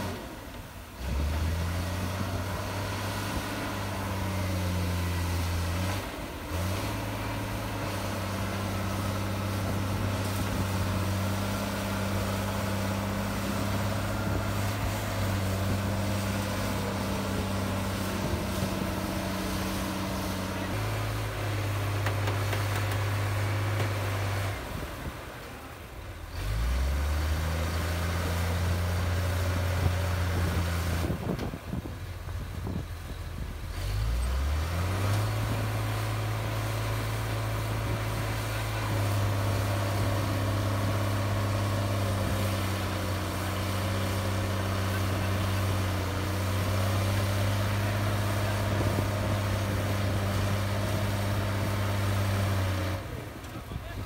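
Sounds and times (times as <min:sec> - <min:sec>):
bulldozer diesel engine droning: 0:00.0 - 0:54.0.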